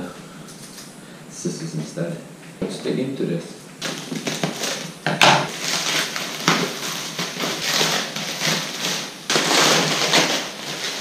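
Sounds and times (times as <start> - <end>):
plastic tearing: 3.8 - 11.0
plastic wrapping crinkling: 3.8 - 11.0
scissors cutting plastic: 5.5 - 11.0.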